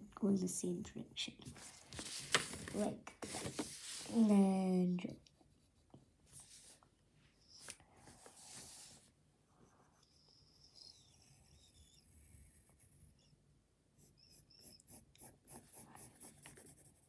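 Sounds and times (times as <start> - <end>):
pencil scratching on paper: 8.1 - 13.3, 14.0 - 17.0.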